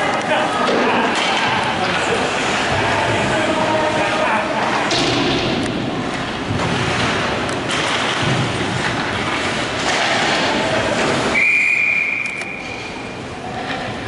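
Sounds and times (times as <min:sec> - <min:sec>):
crowd and rink noise: 0:00.0 - 0:14.0
referee's whistle: 0:11.3 - 0:12.8.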